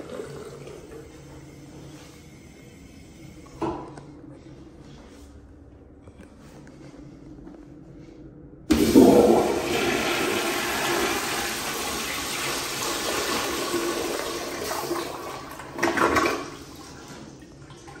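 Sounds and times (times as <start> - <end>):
toilet flushing: 0.0 - 3.2, 8.7 - 18.0.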